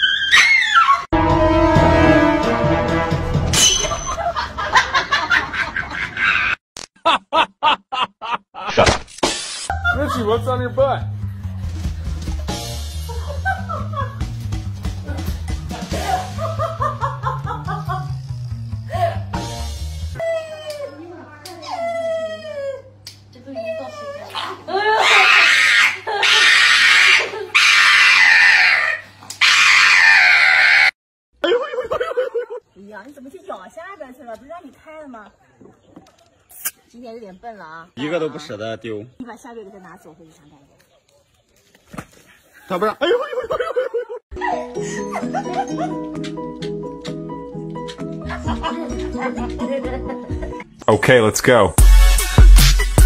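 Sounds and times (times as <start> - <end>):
dog screaming: 0.0 - 1.1, 24.2 - 31.0
person laughing: 4.1 - 8.9, 13.0 - 14.4, 15.7 - 18.2, 31.4 - 32.6, 42.7 - 46.2.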